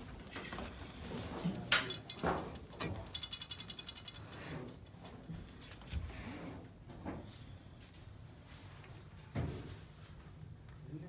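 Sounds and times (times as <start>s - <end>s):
ratcheting clicks: 3.0s - 4.8s.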